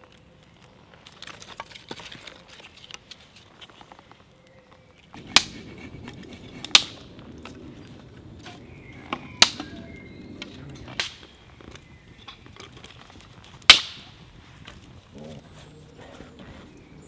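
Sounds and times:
campfire crackling: 0.0s - 17.0s
sharp loud fire cracks: 5.2s - 15.1s.

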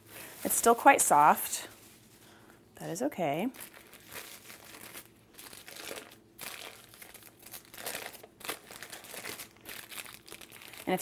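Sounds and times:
plastic wrap crinkling: 3.3s - 11.0s.

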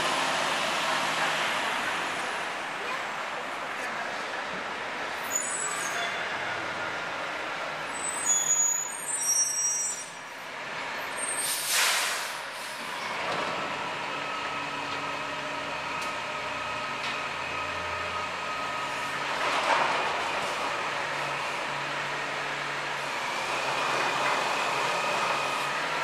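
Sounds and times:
air brake hiss: 11.3s - 12.9s.

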